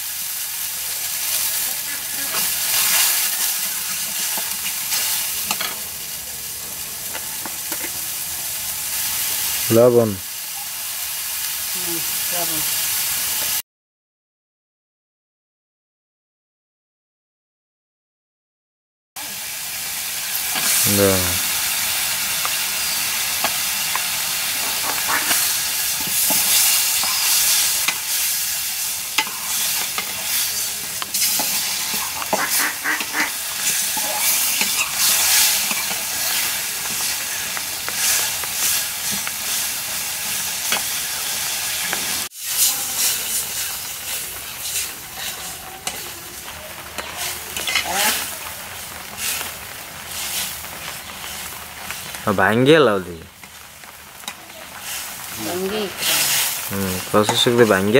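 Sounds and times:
fish frying in oil: 0:00.0 - 0:13.6, 0:19.2 - 0:57.9
metal spatula scraping pan: 0:24.6 - 0:28.4, 0:29.1 - 0:37.0, 0:41.8 - 0:46.2, 0:46.9 - 0:48.2.

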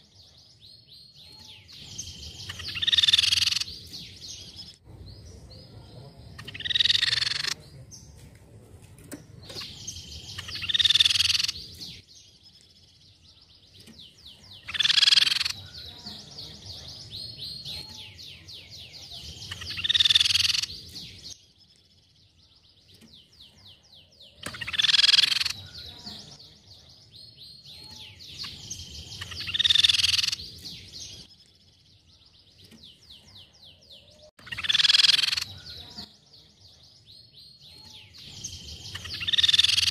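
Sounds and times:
fast rattling bird trill: 0:01.2 - 0:04.5, 0:06.3 - 0:07.6, 0:09.5 - 0:12.0, 0:14.0 - 0:16.3, 0:19.0 - 0:21.3, 0:24.3 - 0:26.3, 0:27.7 - 0:31.3, 0:34.4 - 0:36.0, 0:37.8 - 0:39.9.

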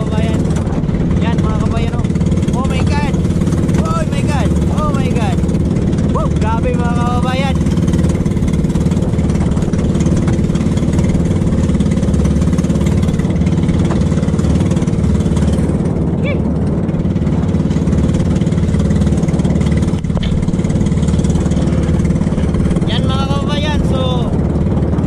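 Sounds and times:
choppy water: 0:00.0 - 0:25.0
small boat engine running: 0:00.0 - 0:25.0
wind: 0:00.0 - 0:25.0.

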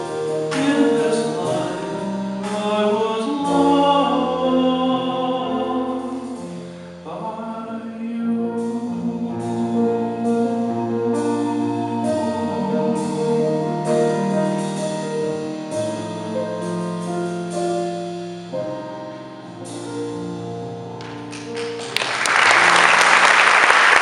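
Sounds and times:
piano accompaniment: 0:00.0 - 0:24.0
audience applause: 0:21.1 - 0:24.0.

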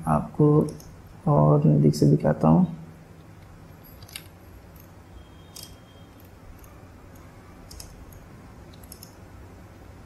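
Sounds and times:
low steady hum: 0:00.0 - 0:10.0
computer clicks: 0:03.2 - 0:09.3.

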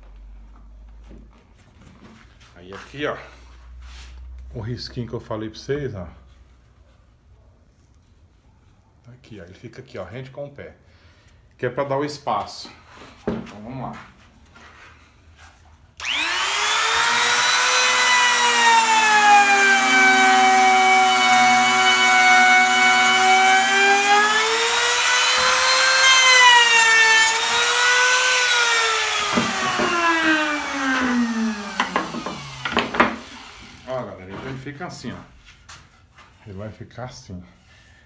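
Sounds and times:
router bit cutting wood: 0:16.0 - 0:34.1
router whining: 0:16.0 - 0:34.1.

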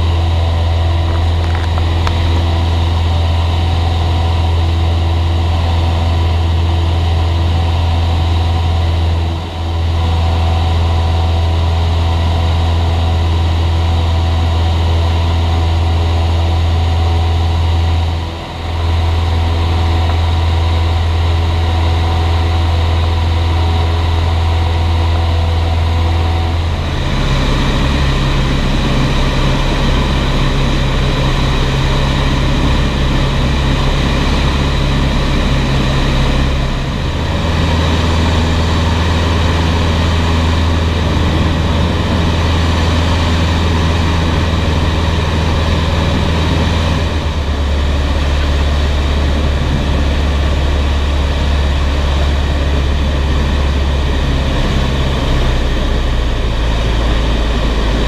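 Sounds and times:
light aircraft engine drone: 0:00.0 - 0:58.0.

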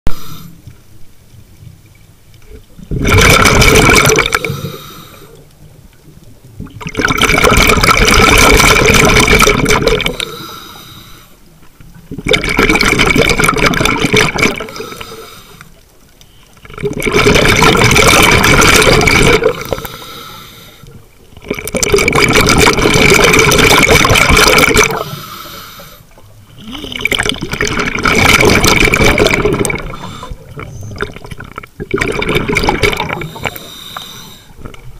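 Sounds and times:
diver exhaling bubbles underwater: 0:02.9 - 0:04.9, 0:06.7 - 0:10.6, 0:12.1 - 0:15.3, 0:16.6 - 0:20.3, 0:20.9 - 0:25.6, 0:26.4 - 0:34.8.

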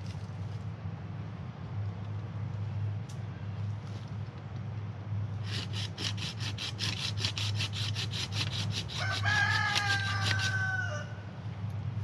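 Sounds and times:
hand saw cutting branch: 0:05.4 - 0:10.7
rooster crowing: 0:08.9 - 0:11.3.

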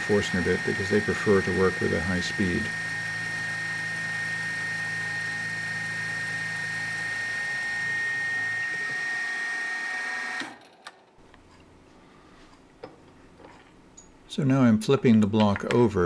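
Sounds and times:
low machine hum: 0:00.0 - 0:09.0
high-pitched spindle whine: 0:00.0 - 0:10.5.

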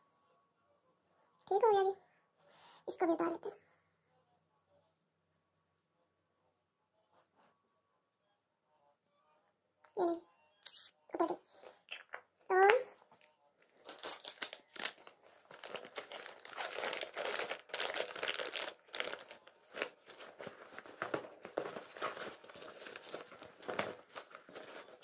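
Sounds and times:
handbag rustling and crinkling: 0:13.6 - 0:25.0.

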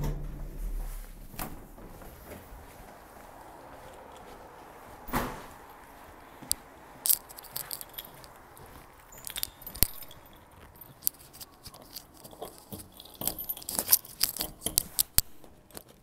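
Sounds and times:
keys jangling: 0:06.4 - 0:16.0.

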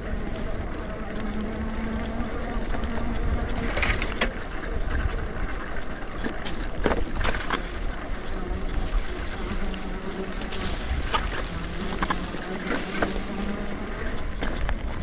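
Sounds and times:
bicycle tyres rumbling on grass: 0:00.0 - 0:15.0
bike clicks and rattles: 0:00.0 - 0:15.0
wind: 0:00.0 - 0:15.0.

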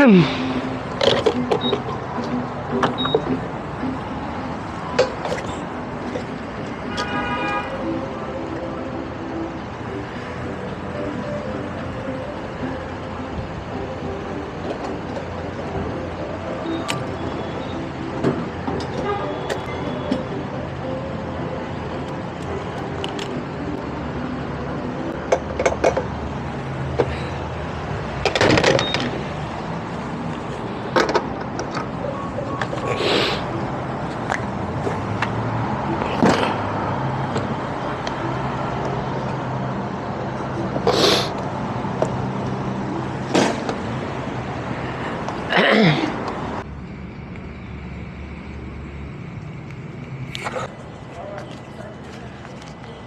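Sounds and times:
traffic hum: 0:00.0 - 0:53.0.

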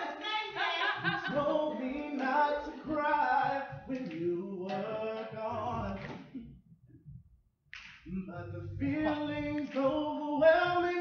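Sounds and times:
man singing a cappella: 0:01.0 - 0:06.5, 0:08.0 - 0:11.0.

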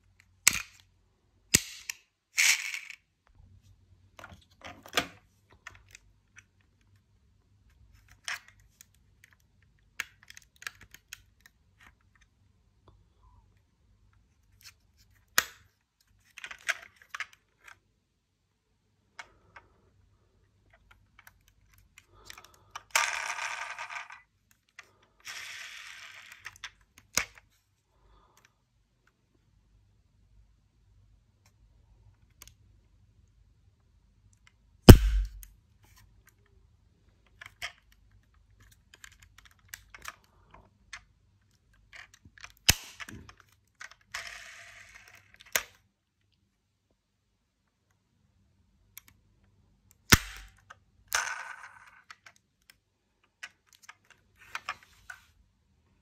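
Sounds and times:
toy cars scraping: 0:02.4 - 0:03.0, 0:25.2 - 0:26.6.

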